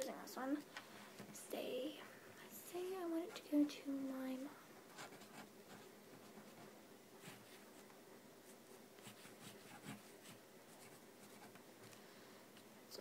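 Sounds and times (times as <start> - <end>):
pen scratching on paper: 5.0 - 7.6, 9.0 - 11.6.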